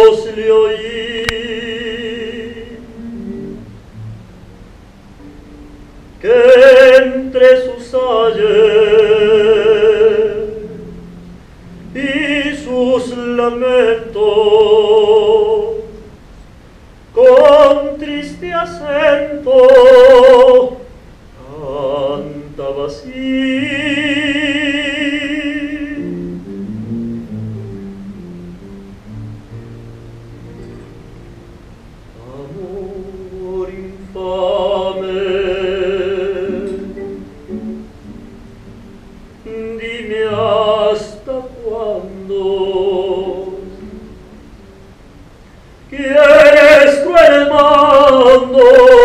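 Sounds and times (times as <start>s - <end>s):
person singing operatically: 0.0s - 3.2s, 6.2s - 11.0s, 11.8s - 16.1s, 17.1s - 26.2s, 32.2s - 37.3s, 39.4s - 44.2s, 45.9s - 49.0s
soft guitar: 0.0s - 49.0s.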